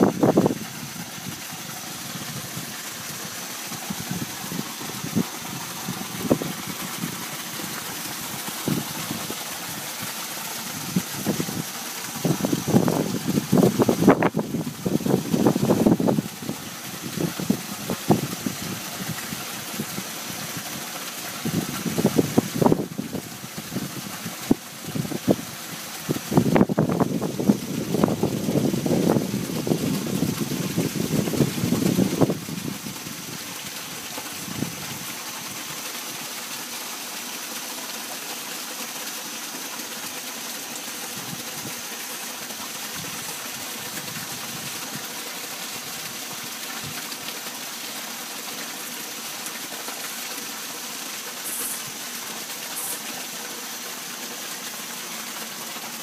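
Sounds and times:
running water: 0:00.0 - 0:56.0.

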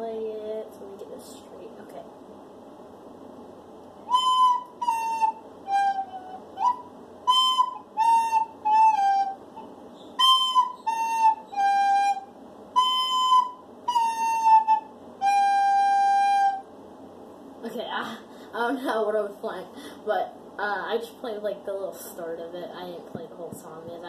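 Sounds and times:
recorder playing a simple tune: 0:04.1 - 0:16.6.

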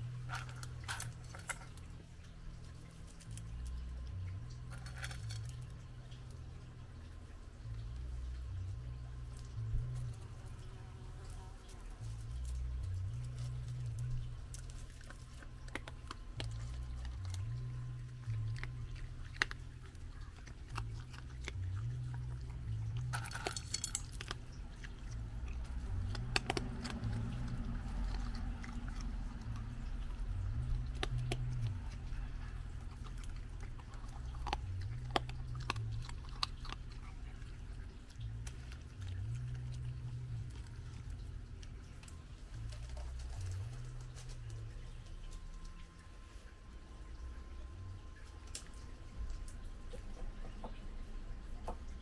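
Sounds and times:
raccoon crunching dry kibble: 0:00.0 - 0:52.0.

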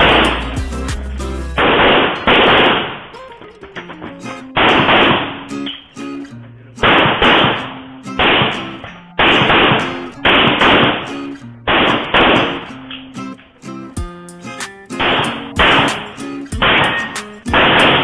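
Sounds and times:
background music: 0:00.0 - 0:02.5, 0:13.9 - 0:18.0.

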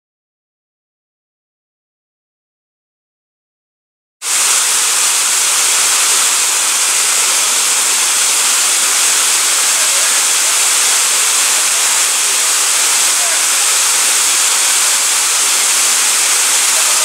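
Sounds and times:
waterfall rushing: 0:04.2 - 0:17.0.

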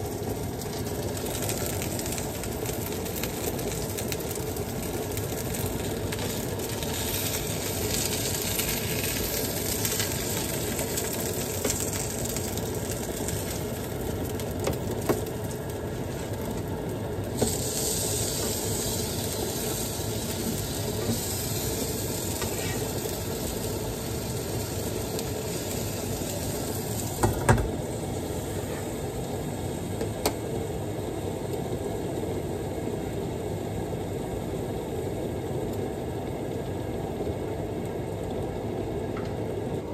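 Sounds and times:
fish sizzling in oil: 0:00.0 - 0:29.7.

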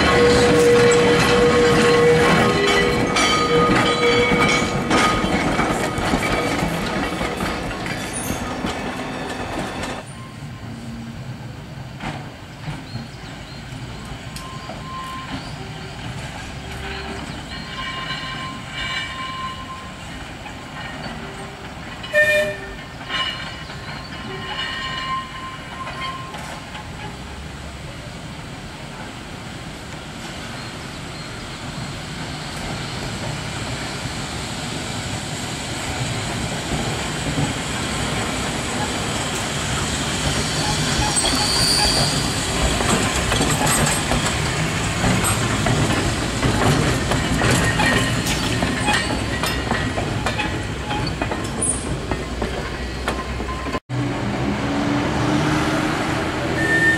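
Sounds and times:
tram wheels rumbling on rails: 0:00.0 - 0:56.9
wheel squeals: 0:12.8 - 0:27.2, 0:38.7 - 0:53.8, 0:56.6 - 0:56.9.

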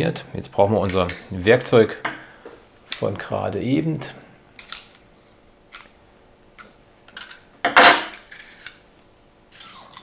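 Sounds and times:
metal scrape and clink: 0:07.2 - 0:08.8, 0:09.5 - 0:10.0.

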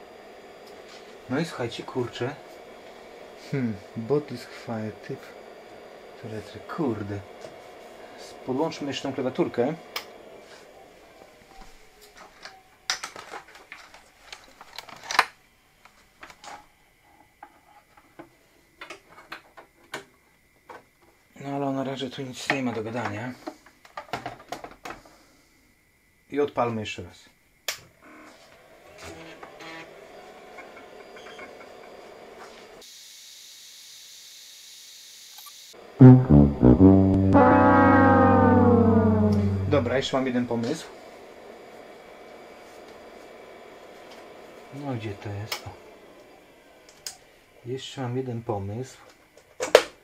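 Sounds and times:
faint hum and hiss: 0:00.0 - 0:32.9, 0:38.4 - 0:50.0
sad trombone sound effect: 0:36.0 - 0:40.2.

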